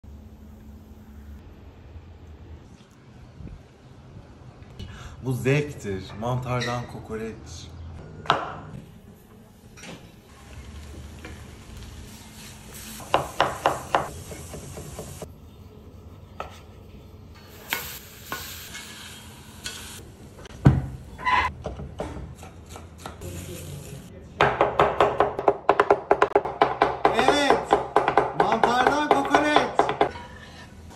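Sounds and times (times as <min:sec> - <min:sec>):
mushrooms sizzling in a skillet: 0:17.5 - 0:20.0.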